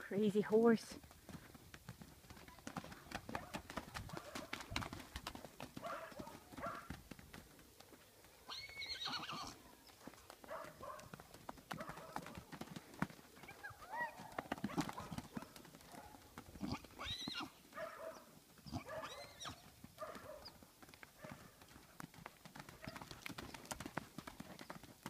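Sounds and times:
horse hoofbeats galloping on dirt: 0.0 - 25.0
horse whinnying: 8.5 - 9.6, 16.6 - 17.6, 18.6 - 19.6.

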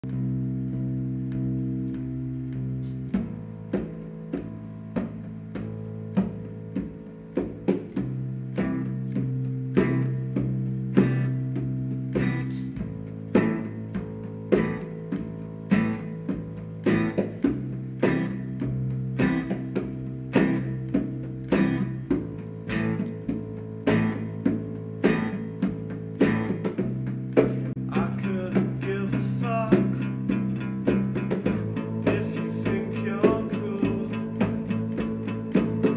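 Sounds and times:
acoustic guitar strumming: 0.0 - 35.9
electric bass long low notes: 0.0 - 35.9.

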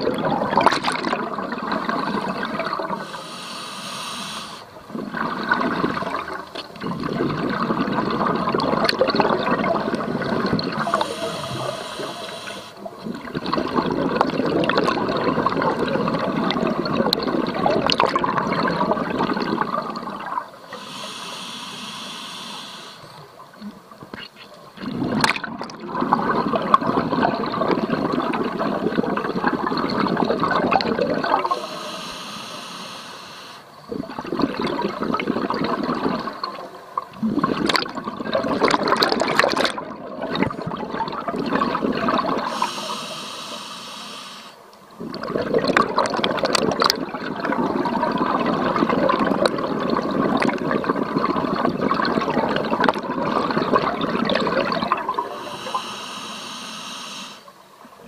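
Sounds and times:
exhaled bubbles rushing: 0.0 - 3.2, 4.6 - 20.9, 24.7 - 32.0, 33.7 - 43.1, 44.9 - 55.9
hissing regulator inhale: 3.0 - 4.8, 10.8 - 12.9, 20.7 - 23.3, 31.4 - 33.8, 42.4 - 44.6, 55.2 - 57.6.

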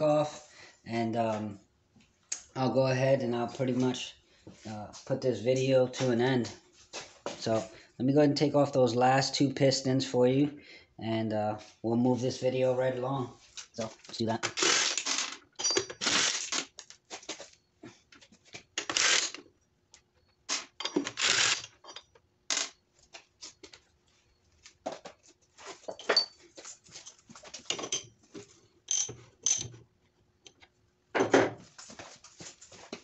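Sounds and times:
metal parts clinking on wood: 15.0 - 16.1, 20.8 - 22.8, 27.0 - 28.1, 28.9 - 29.8.

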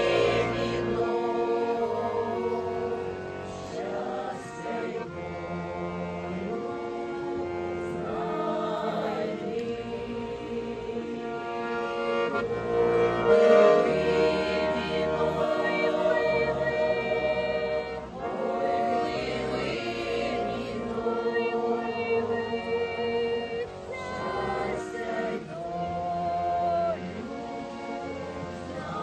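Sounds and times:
accordion: 0.0 - 29.0
women's choir singing: 0.0 - 29.0.

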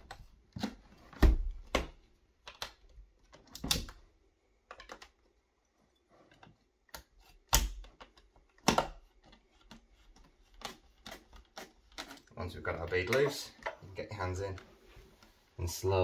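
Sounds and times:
plastic clicks and snaps: 1.7 - 4.0, 4.6 - 5.3.

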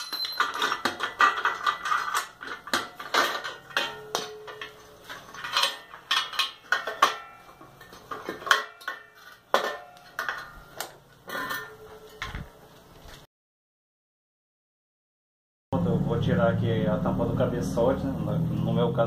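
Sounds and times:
metal clanks and clinks: 0.0 - 12.5.

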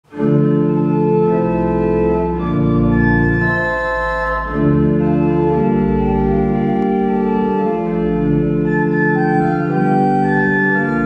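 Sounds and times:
church organ chords: 0.1 - 11.0
deep organ pedal bass notes: 0.1 - 11.0.

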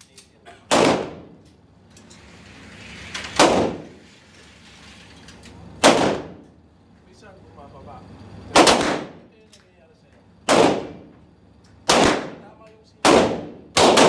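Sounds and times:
gunshots echoing indoors: 0.7 - 1.4, 3.4 - 3.9, 5.8 - 6.5, 8.5 - 9.2, 10.4 - 11.1, 11.8 - 14.0.

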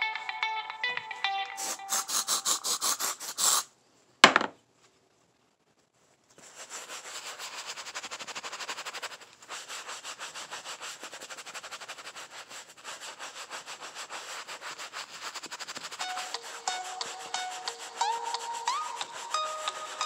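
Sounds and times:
bristle brush scrubbing: 1.6 - 3.7, 6.3 - 20.0.

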